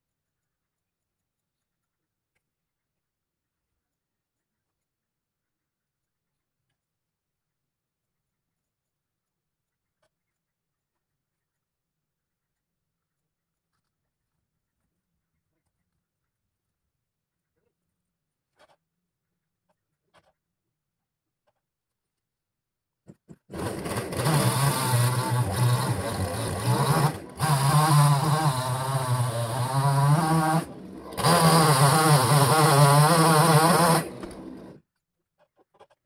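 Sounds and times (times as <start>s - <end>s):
chainsaw running at high revs: 23.5s - 34.8s.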